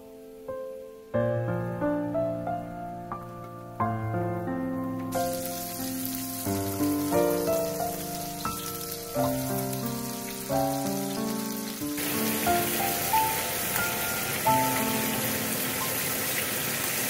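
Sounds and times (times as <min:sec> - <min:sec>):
soft piano music: 0:00.0 - 0:17.0
scallops sizzling in butter: 0:05.1 - 0:17.0.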